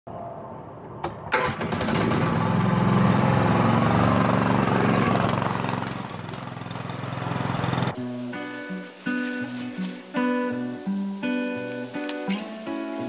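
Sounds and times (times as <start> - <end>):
go-kart engine passing by: 1.3 - 8.0.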